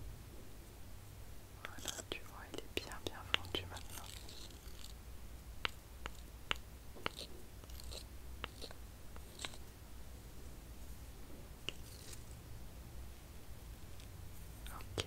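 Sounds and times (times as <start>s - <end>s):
spoon stirring sticky paste: 2.9s - 5.0s, 5.6s - 9.7s, 11.6s - 12.4s.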